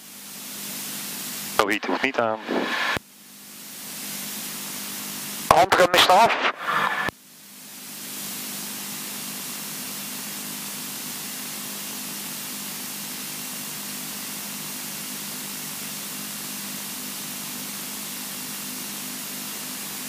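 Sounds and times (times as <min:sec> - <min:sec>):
steady hiss: 0:01.2 - 0:03.0.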